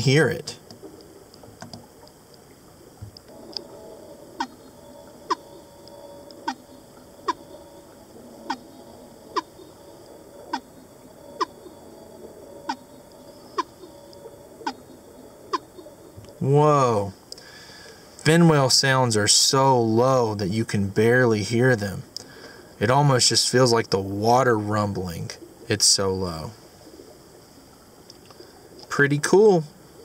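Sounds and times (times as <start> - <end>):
faint steady hum: 0.0 - 30.0
whale calls falling pulses: 2.7 - 16.1.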